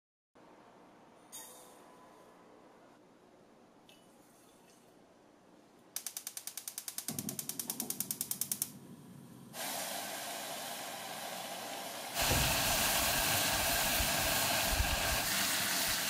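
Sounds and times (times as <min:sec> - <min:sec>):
stove igniter clicking: 0:06.0 - 0:08.8
gas flame low rumble: 0:07.1 - 0:16.0
saucepan hissing: 0:09.5 - 0:16.0.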